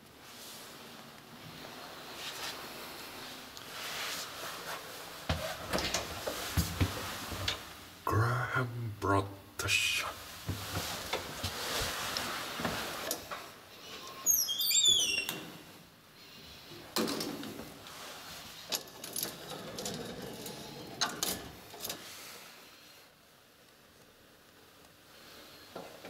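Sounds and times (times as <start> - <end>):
metal hinge squeaking: 14.1 - 15.4.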